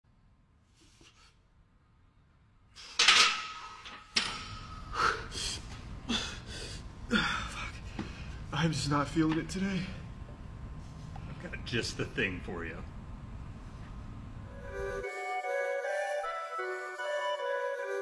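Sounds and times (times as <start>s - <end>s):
barbell metallic clank: 3.0s - 4.8s.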